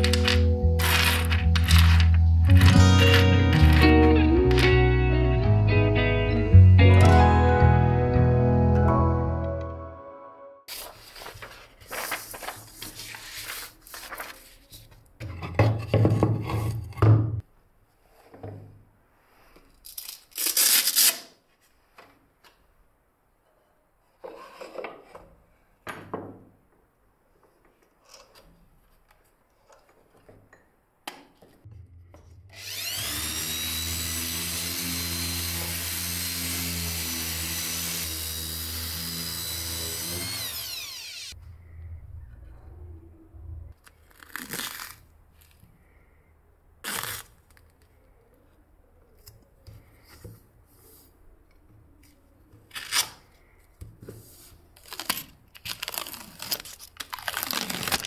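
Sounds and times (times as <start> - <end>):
paper rustling and knocks: 10.7 - 16.4
orbital sander whine: 32.5 - 41.4.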